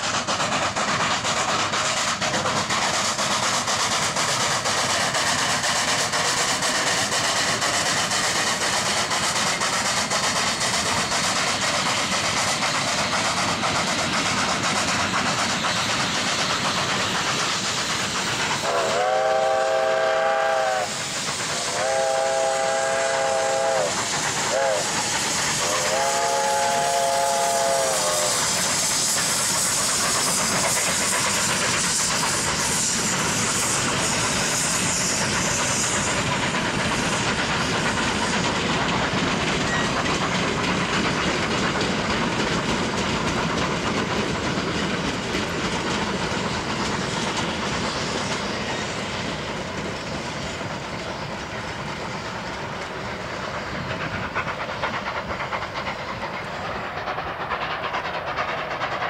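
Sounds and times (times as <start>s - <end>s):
freight cars rumbling on rails: 0.0s - 59.0s
loud steam hiss: 0.0s - 59.0s
steam locomotive chime whistle: 18.6s - 21.0s, 21.6s - 28.5s, 39.6s - 40.1s.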